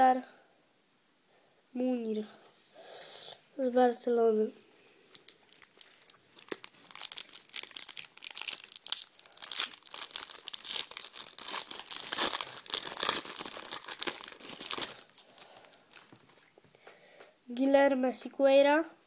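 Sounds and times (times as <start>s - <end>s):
foil sachet tearing and crinkling: 5.1s - 16.4s.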